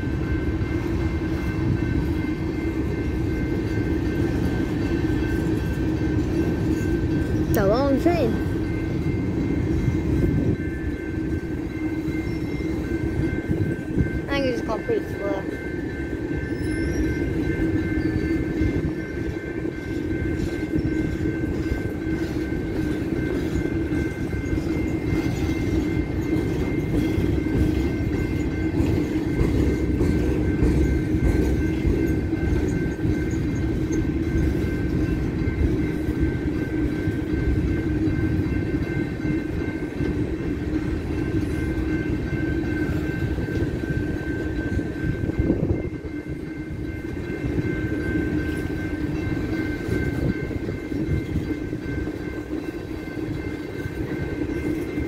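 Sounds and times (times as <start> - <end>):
train wheels rumbling on rail: 0.0 - 55.0.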